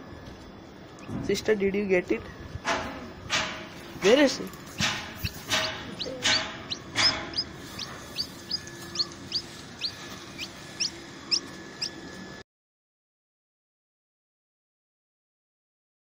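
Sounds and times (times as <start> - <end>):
young bird peeping: 4.6 - 12.1.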